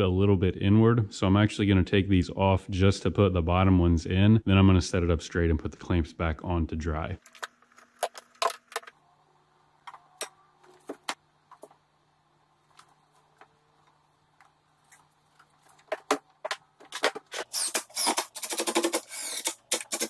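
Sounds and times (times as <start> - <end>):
cordless drill driving screws: 17.3 - 20.0.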